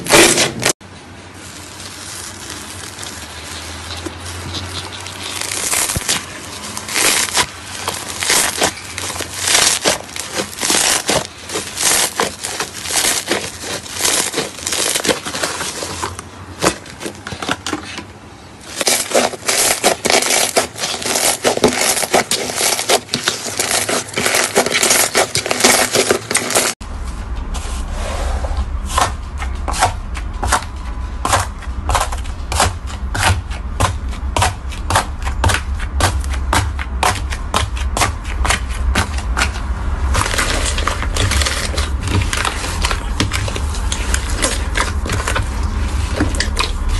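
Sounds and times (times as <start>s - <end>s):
crunchy slime crackling: 0.0s - 18.0s, 18.6s - 26.8s, 28.9s - 46.9s
slime crackling and popping: 1.4s - 17.1s, 18.7s - 26.8s, 34.7s - 46.9s
low hum: 26.7s - 46.9s.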